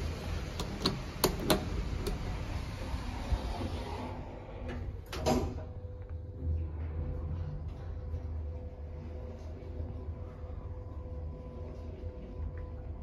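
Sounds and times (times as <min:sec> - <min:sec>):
lift doors sliding shut: 0:00.0 - 0:05.7
faint steady hum: 0:00.0 - 0:13.0.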